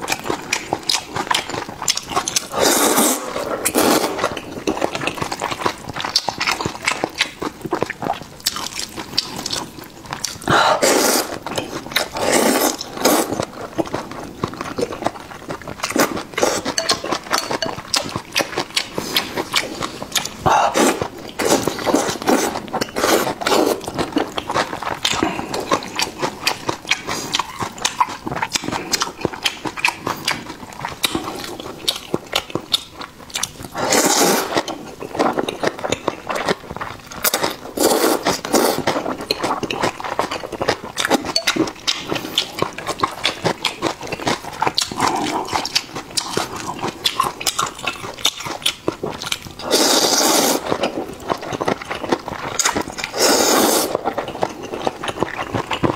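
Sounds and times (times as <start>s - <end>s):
wet chewing with mouth clicks: 0.0s - 55.9s
slurping noodles: 2.3s - 6.6s, 10.4s - 13.6s, 15.7s - 17.5s, 18.8s - 24.0s, 33.7s - 35.4s, 37.2s - 39.7s, 49.6s - 51.1s, 52.6s - 55.0s.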